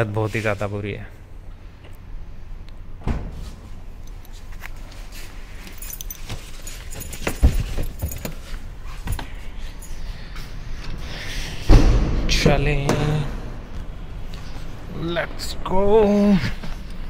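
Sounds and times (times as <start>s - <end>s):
clicks and rustling handling: 4.0s - 9.9s
keys jingling: 4.0s - 10.4s
heavy thump: 11.6s - 13.7s.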